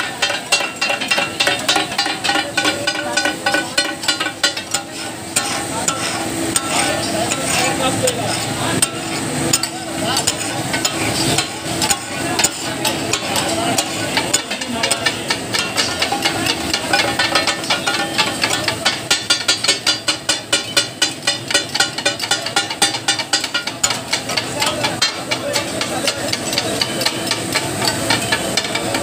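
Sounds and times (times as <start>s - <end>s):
offal sizzling: 0.0s - 20.6s
metal spatulas clacking on griddle: 0.0s - 29.0s.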